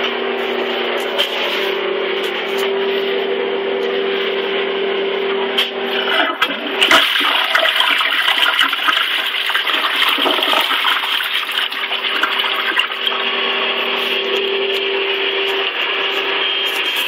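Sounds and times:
humming tone: 0.0s - 8.1s, 11.7s - 17.0s
toilet flushing water gurgling: 5.9s - 13.5s
toilet refilling with water: 6.0s - 13.3s.

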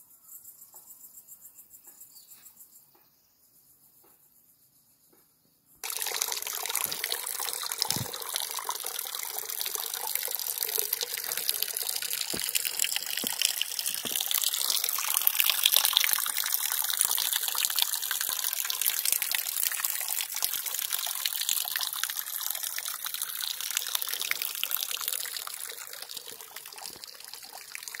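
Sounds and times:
rushing water: 5.8s - 28.0s.

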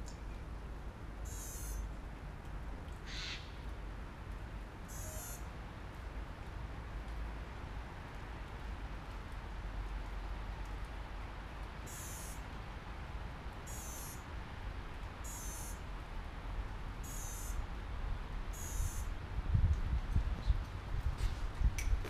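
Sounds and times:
high-pitched electronic beeps: 4.9s - 5.4s, 11.9s - 12.4s, 13.7s - 14.2s, 15.3s - 15.8s, 17.0s - 17.6s, 18.6s - 19.1s.

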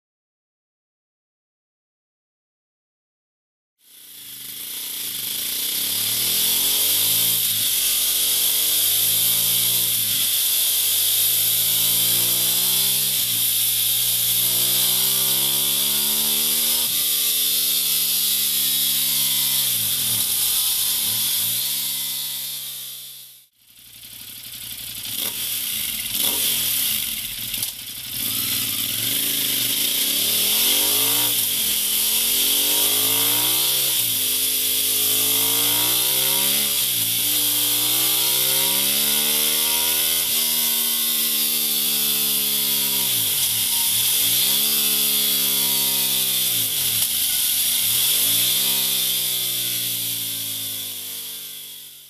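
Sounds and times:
motorcycle engine revving: 3.8s - 52.0s.

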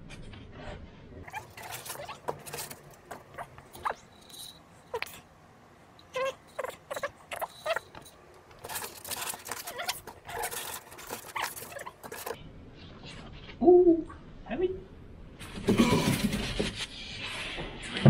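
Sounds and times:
packing foam squeaking: 1.3s - 4.5s, 8.6s - 12.4s.

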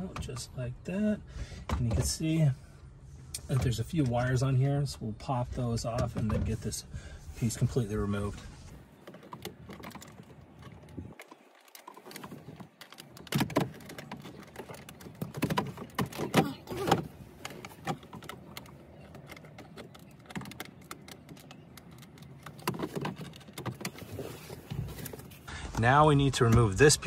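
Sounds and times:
plastic clicks and rattles: 9.0s - 25.2s.

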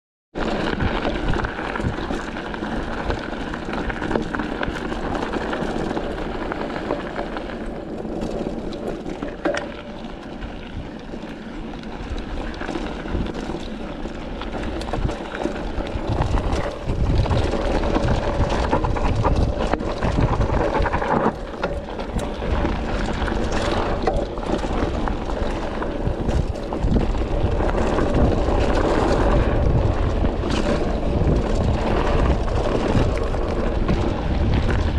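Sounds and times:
bike knocking and rattling: 0.4s - 34.9s
bike tyres rolling on gravel: 0.4s - 34.9s
wind on microphone: 14.5s - 34.9s.

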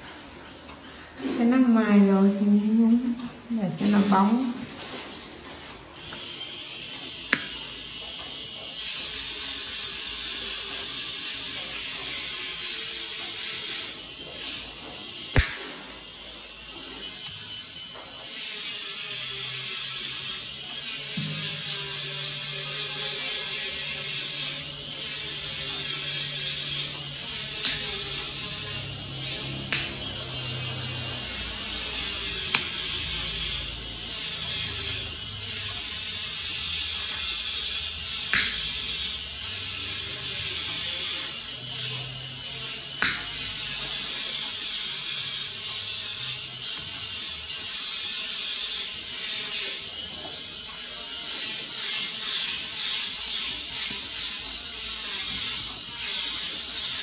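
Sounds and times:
nail nippers clicking: 7.3s - 7.6s, 15.4s - 15.6s, 27.6s - 27.9s, 29.7s - 30.0s, 32.5s - 32.8s, 38.3s - 38.8s, 43.0s - 43.4s.

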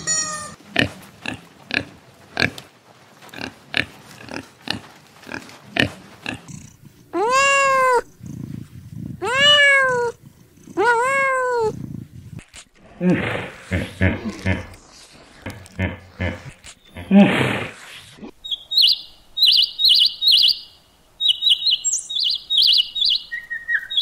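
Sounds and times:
pig grunting: 0.7s - 2.7s, 3.3s - 9.3s, 11.7s - 18.4s
kitten meowing: 7.2s - 8.1s, 9.2s - 10.2s, 10.8s - 11.7s.

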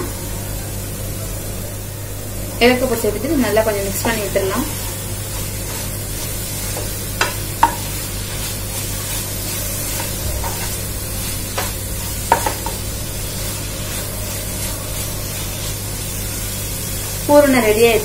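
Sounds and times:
filling sizzling: 0.0s - 18.0s.

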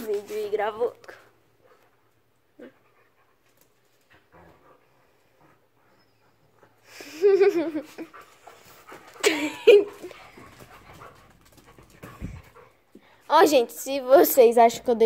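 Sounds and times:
dogs scuffling: 0.0s - 1.9s, 7.9s - 13.6s.

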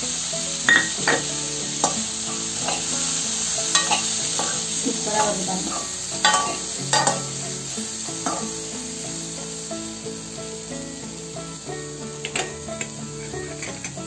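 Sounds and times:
oil sizzling: 0.0s - 14.0s
metal spoon scraping pan: 0.7s - 3.1s, 3.7s - 7.3s, 8.2s - 8.6s, 13.2s - 14.0s.

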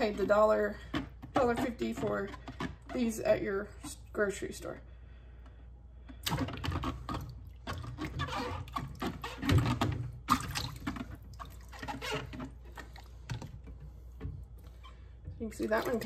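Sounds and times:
water sloshing in a bowl: 6.2s - 16.0s.

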